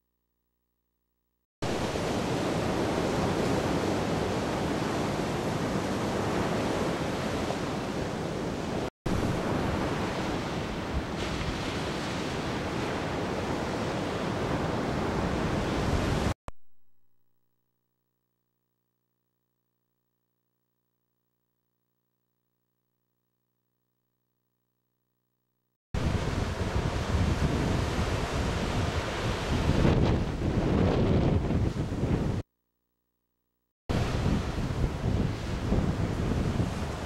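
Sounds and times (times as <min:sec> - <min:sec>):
ocean waves breaking: 0:01.6 - 0:16.3, 0:26.0 - 0:32.2, 0:33.9 - 0:37.0.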